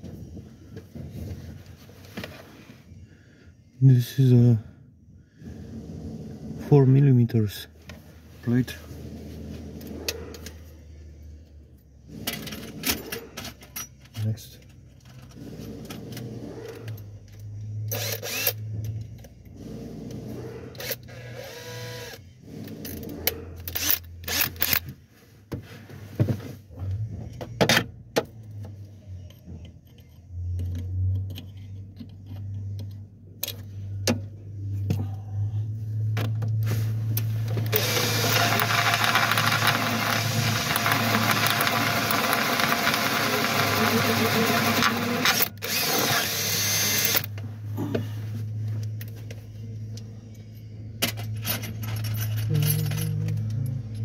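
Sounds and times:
power drill cutting steel: 0:18.0 - 0:18.6, 0:20.8 - 0:22.2, 0:37.7 - 0:47.3.

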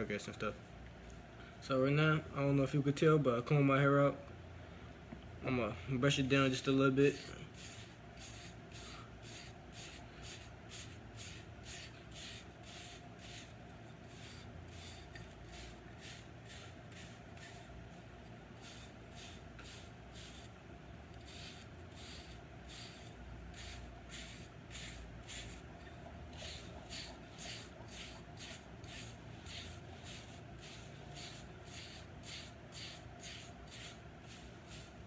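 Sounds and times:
hair brush swishing through hair: 0:07.1 - 0:17.7, 0:21.2 - 0:25.6, 0:26.3 - 0:35.0.

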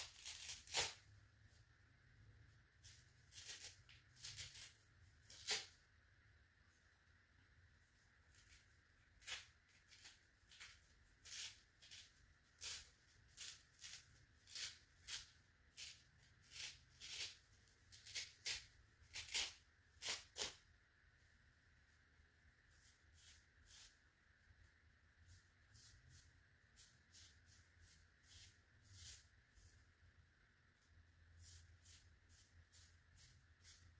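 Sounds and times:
sponge ripping: 0:00.0 - 0:01.1, 0:02.8 - 0:05.8, 0:08.3 - 0:20.6.

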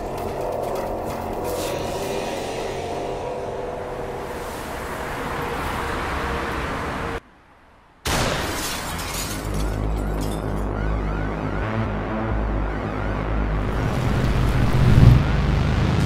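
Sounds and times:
rising swell: 0:01.5 - 0:07.2
cinematic action music: 0:10.3 - 0:16.0
deep low rumble: 0:11.6 - 0:16.0.

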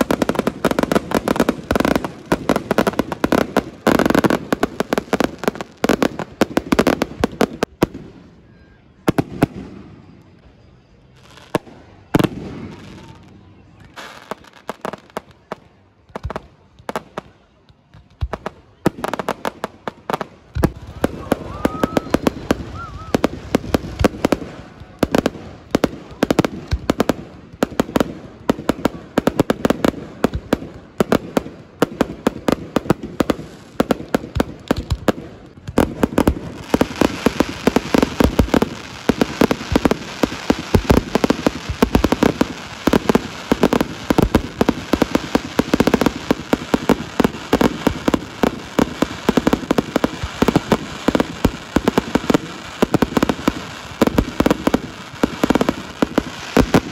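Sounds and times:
fireworks bursting: 0:00.0 - 0:10.4, 0:11.1 - 0:56.9.

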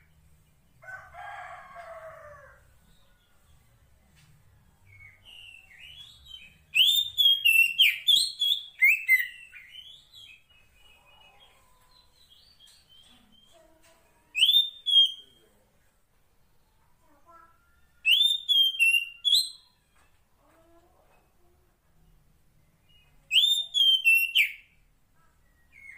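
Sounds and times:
bird whistling calls: 0:06.8 - 0:10.0, 0:14.4 - 0:15.2, 0:18.0 - 0:19.6, 0:23.3 - 0:24.6.

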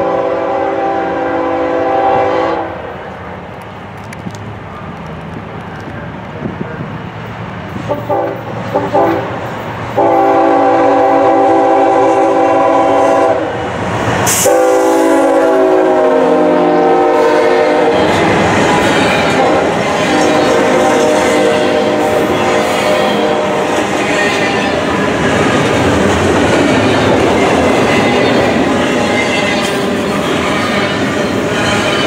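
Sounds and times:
locomotive air horn: 0:00.0 - 0:02.9, 0:07.9 - 0:13.6, 0:14.3 - 0:24.8
freight cars rumbling over rails: 0:00.0 - 0:32.0.

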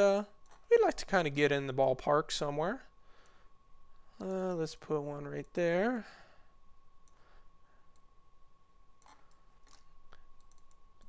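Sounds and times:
computer mouse clicks: 0:09.0 - 0:11.0.

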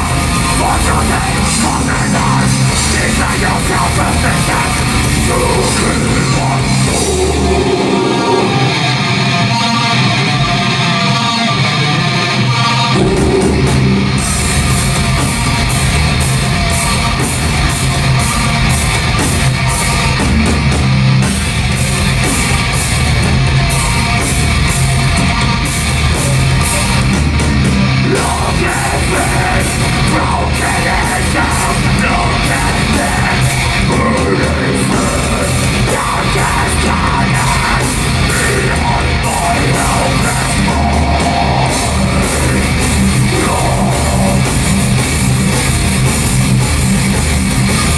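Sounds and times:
distorted electric guitars: 0:00.0 - 0:47.9
drums: 0:00.0 - 0:47.9
shouted vocals: 0:28.0 - 0:44.8.

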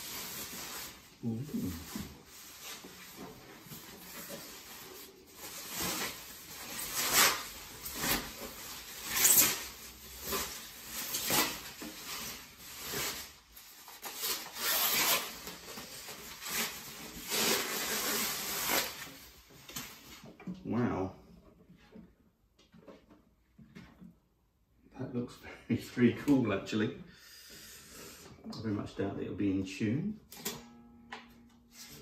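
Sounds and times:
packaging wrap rustling: 0:00.0 - 0:20.2.

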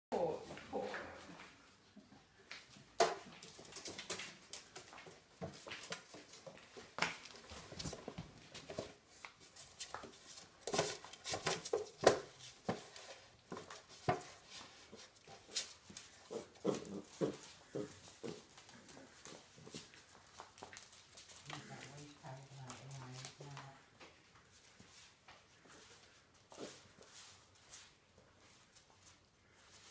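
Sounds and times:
dogs growling and yapping: 0:16.0 - 0:19.8.

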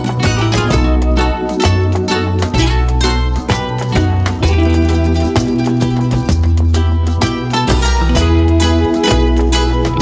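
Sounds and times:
plucked strings: 0:00.0 - 0:10.0
steady bass line: 0:00.0 - 0:10.0.

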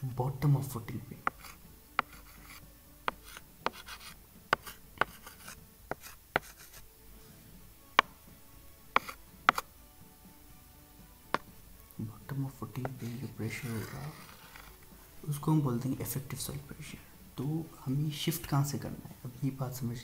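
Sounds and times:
light rubbing: 0:01.2 - 0:06.9, 0:09.0 - 0:09.7, 0:12.8 - 0:15.0
stylus tapping on tablet screen: 0:01.3 - 0:06.8, 0:07.9 - 0:08.2, 0:08.9 - 0:09.7, 0:11.3 - 0:11.5.

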